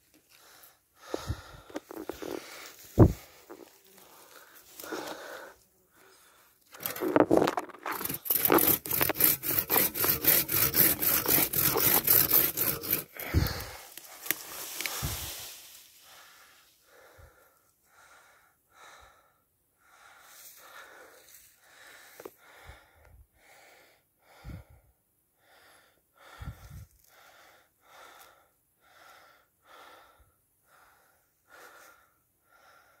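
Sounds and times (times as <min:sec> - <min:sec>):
heavy breathing: 0:00.3 - 0:33.0
hand saw cutting wood: 0:06.7 - 0:15.3.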